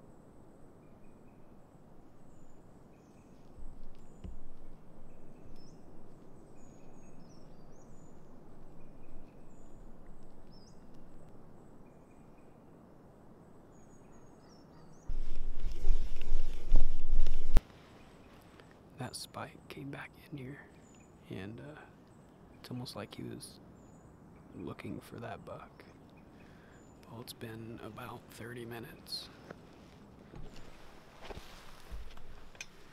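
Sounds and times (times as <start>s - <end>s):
small birds chirping: 0.8s - 12.7s, 13.7s - 32.9s
steady hiss: 15.0s - 32.9s
camera handling rumble: 15.1s - 17.6s.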